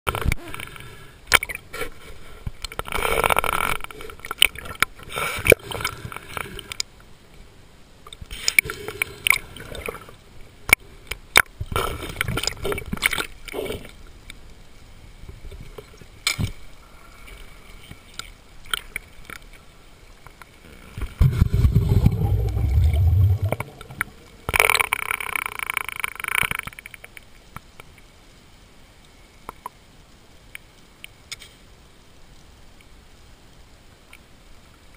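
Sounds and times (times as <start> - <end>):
underwater bubbles gurgling: 20.9 - 25.0
low rumble: 21.2 - 24.5.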